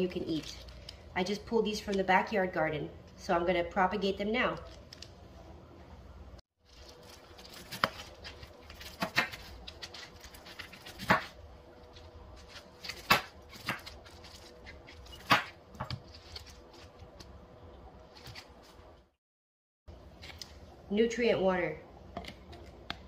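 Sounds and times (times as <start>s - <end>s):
knife cutting pineapple: 7.0s - 11.4s.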